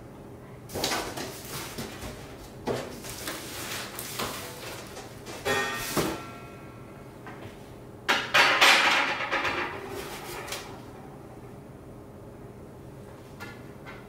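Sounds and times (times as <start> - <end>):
rustling and scraping cardboard: 0.7 - 5.0.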